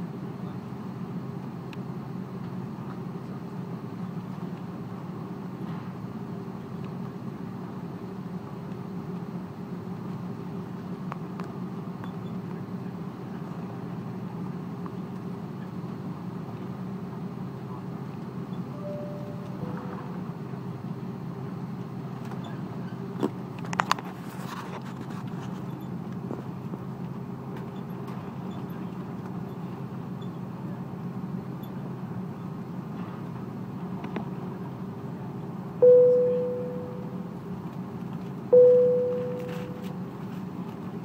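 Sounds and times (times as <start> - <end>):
airplane cabin noise: 6.6 - 41.0
cabin chime ding: 18.8 - 20.1, 35.8 - 37.2, 38.6 - 39.9.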